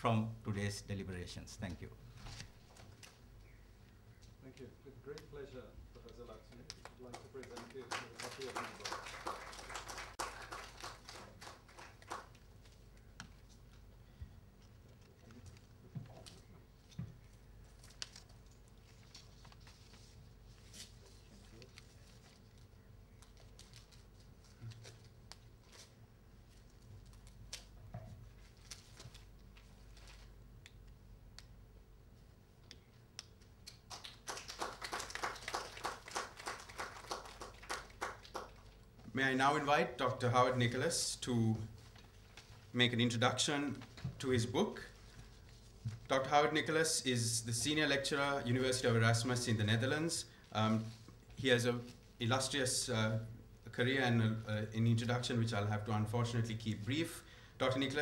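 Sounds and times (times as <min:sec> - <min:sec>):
faint room noise: 0:00.0 - 0:58.0
scattered applause: 0:06.8 - 0:12.4, 0:33.9 - 0:38.7
wrapping paper crinkling: 0:17.6 - 0:27.7, 0:28.4 - 0:30.4.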